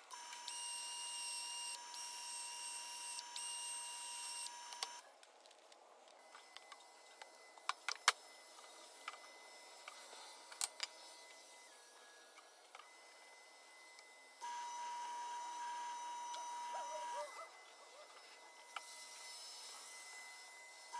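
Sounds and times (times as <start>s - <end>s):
sanding disc motor whine: 6.2s - 20.9s.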